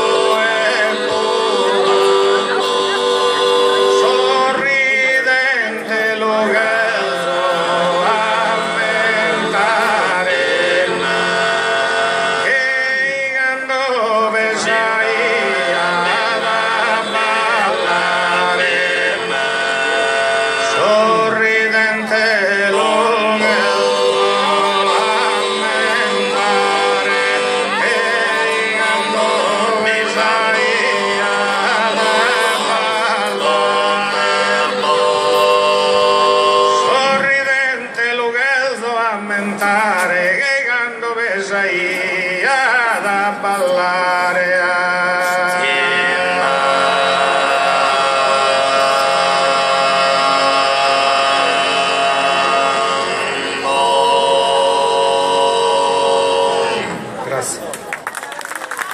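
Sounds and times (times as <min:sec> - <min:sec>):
low voices droning: 0:00.0 - 0:37.5
men singing in close harmony: 0:00.0 - 0:57.1.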